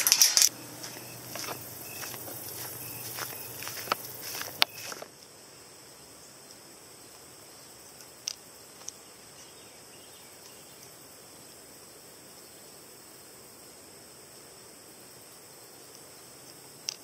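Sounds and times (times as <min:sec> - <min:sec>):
footsteps through grass: 0:00.0 - 0:05.1
insects droning: 0:00.0 - 0:17.0.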